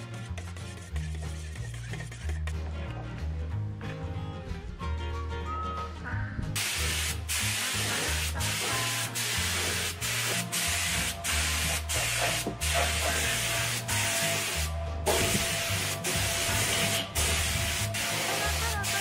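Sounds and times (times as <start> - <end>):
spray gun hissing: 6.6 - 19.0.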